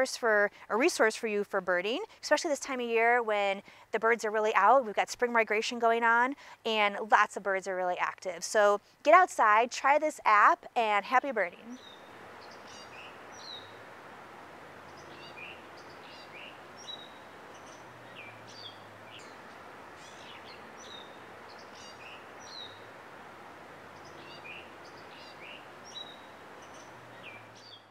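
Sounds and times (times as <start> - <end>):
outdoor background hiss: 0.0 - 27.9
birds singing: 11.7 - 14.0, 14.7 - 27.9.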